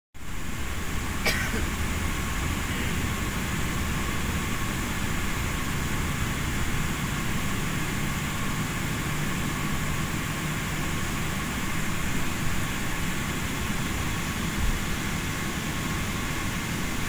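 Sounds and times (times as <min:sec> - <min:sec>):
aircraft cabin rumble and hiss: 0:00.2 - 0:17.0.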